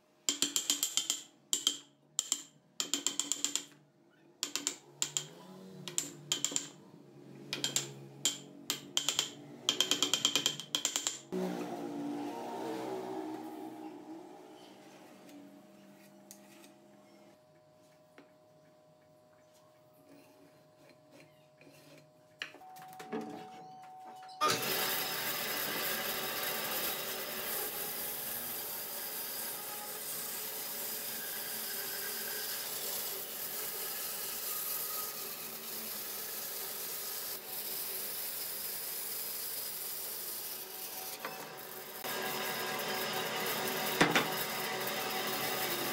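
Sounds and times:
band saw cutting log: 24.4 - 45.9.

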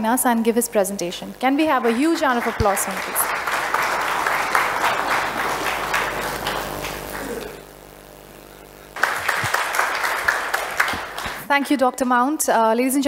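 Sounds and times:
audience applauding: 1.6 - 7.6, 9.0 - 11.5.

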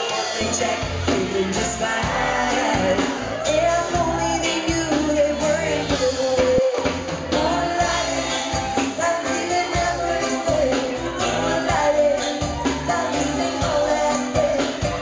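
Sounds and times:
drum kit beat: 0.0 - 15.0
electric guitar: 0.0 - 15.0
keyboards: 0.0 - 15.0
woman singing: 1.5 - 15.0.

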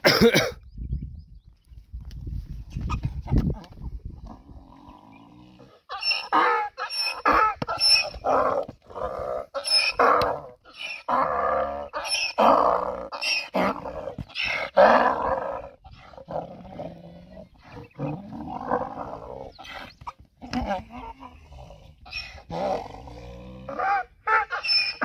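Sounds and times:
donkey braying: 5.6 - 15.8, 17.4 - 25.0.

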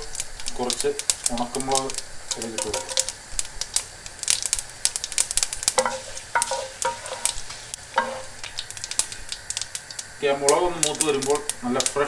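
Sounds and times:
spices sizzling in hot oil: 0.0 - 12.0
wooden spatula scraping pot: 5.8 - 8.4.

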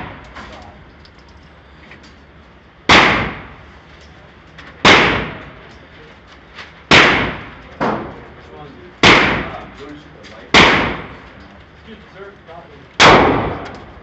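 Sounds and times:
pistol shots echoing indoors: 4.8 - 5.4, 6.9 - 7.6, 9.0 - 9.6, 10.5 - 11.2, 13.0 - 13.8.

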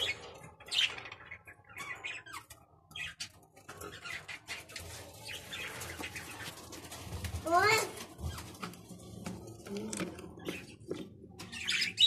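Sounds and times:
budgerigars chirping: 11.5 - 12.0.

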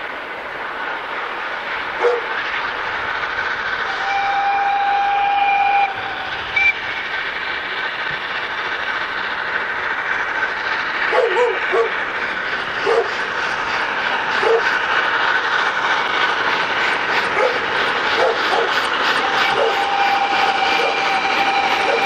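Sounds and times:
steam locomotive whistle: 3.8 - 6.9, 18.2 - 22.0.

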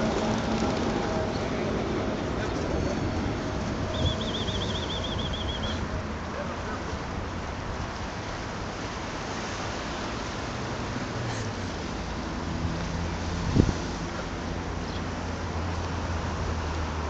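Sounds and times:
distant city traffic: 0.0 - 17.0
wind on microphone: 2.7 - 6.2, 12.4 - 14.2.

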